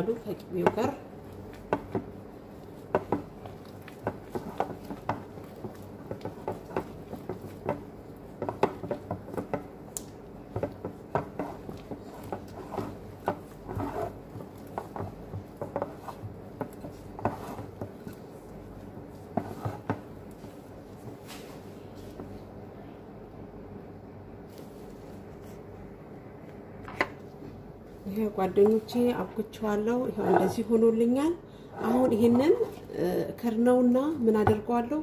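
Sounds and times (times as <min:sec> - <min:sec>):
dough rubbing: 0:00.0 - 0:22.4
dough tapping against glass bowl: 0:00.6 - 0:02.2, 0:02.8 - 0:18.2.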